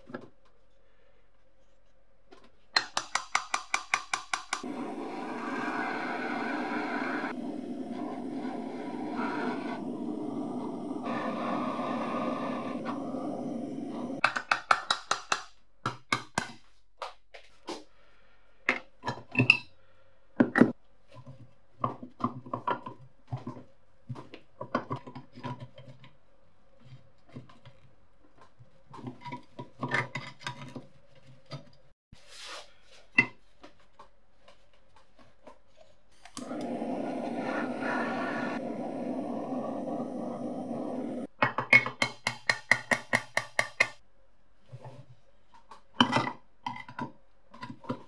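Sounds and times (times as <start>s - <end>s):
gas torch hissing: 4.6s - 14.2s, 36.4s - 41.3s.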